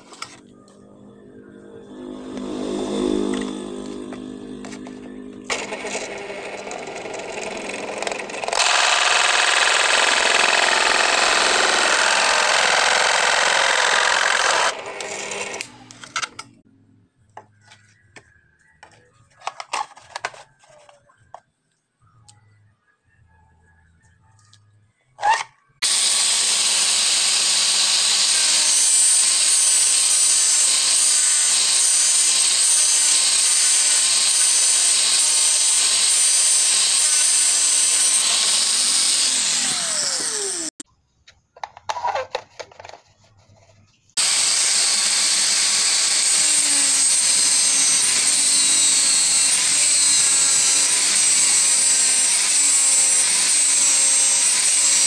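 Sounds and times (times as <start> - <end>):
angle grinder cutting plastic pipe: 0.0 - 0.5, 2.2 - 16.6, 25.2 - 40.8, 44.2 - 55.0.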